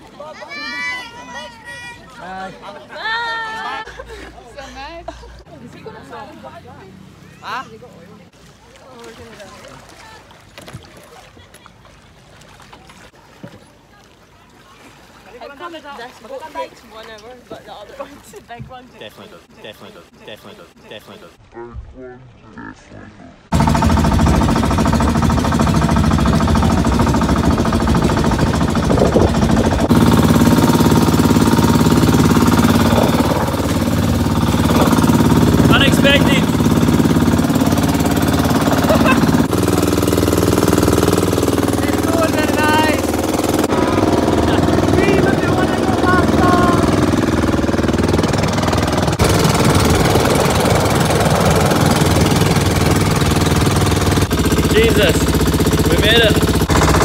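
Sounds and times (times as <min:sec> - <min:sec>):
wind and water rushing: 0:23.4 - 0:57.0
boat engine chugging: 0:23.5 - 0:57.0.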